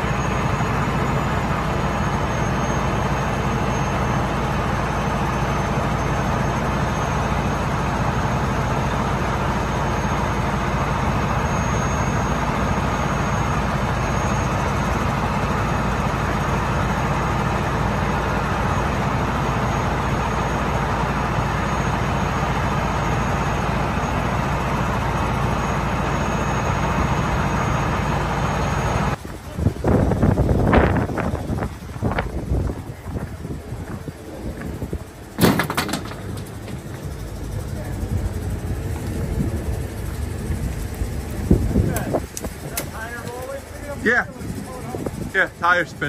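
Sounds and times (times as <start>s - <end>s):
diesel engine running: 0.0s - 46.0s.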